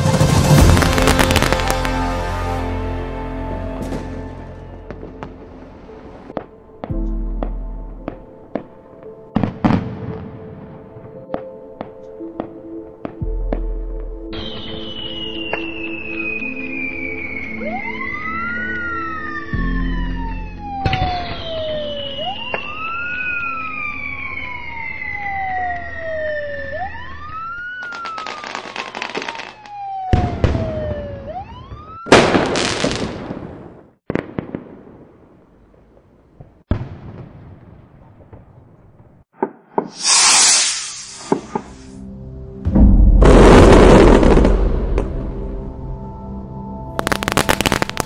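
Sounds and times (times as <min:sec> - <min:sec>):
fireworks bangs and crackling: 0:00.0 - 0:02.6, 0:09.4 - 0:10.8, 0:27.8 - 0:31.2, 0:32.0 - 0:41.9, 0:42.8 - 0:45.4, 0:47.0 - 0:48.0
rising and falling whistle: 0:14.4 - 0:31.6, 0:40.0 - 0:41.8.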